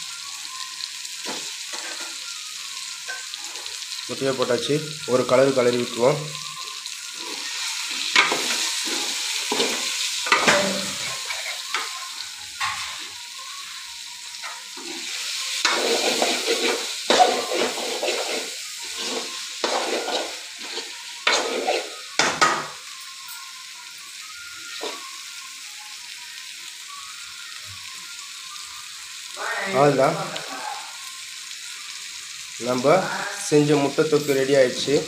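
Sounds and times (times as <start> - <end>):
frying sizzle: 0.0 - 35.0
spoon scraping and knocking pan: 7.2 - 13.1, 14.4 - 22.8.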